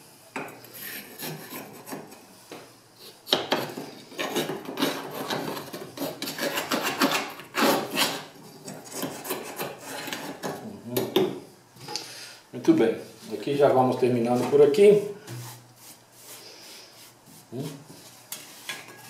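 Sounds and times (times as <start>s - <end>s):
tool scraping soot in stove: 0.6s - 2.2s, 3.3s - 10.5s.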